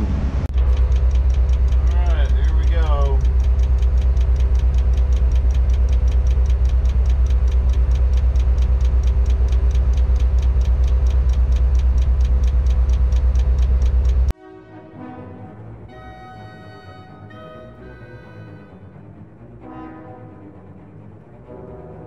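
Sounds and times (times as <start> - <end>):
diesel engine rumbling: 0.0 - 14.3.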